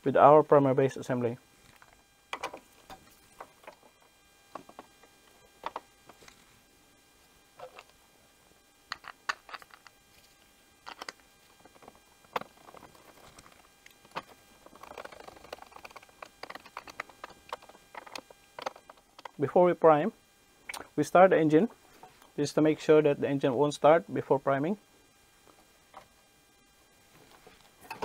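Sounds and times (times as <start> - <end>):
scratchy clicks: 12.3 - 19.4
plastic parts clicking: 14.2 - 19.4.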